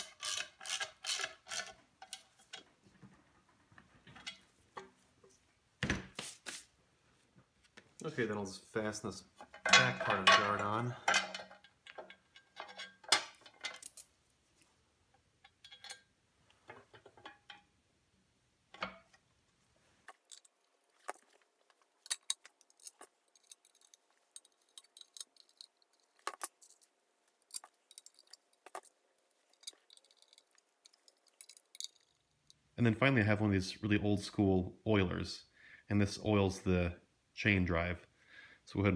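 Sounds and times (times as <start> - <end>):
screws clicking on metal: 0.0 - 2.2.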